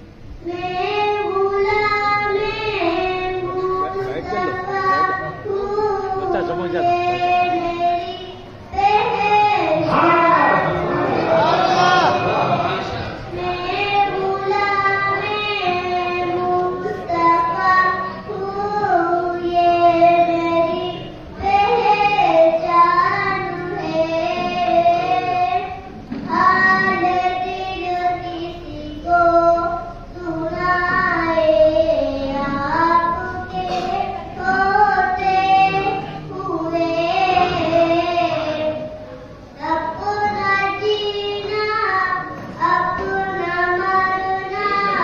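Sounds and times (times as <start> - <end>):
boy singing into a microphone: 0.4 - 45.0.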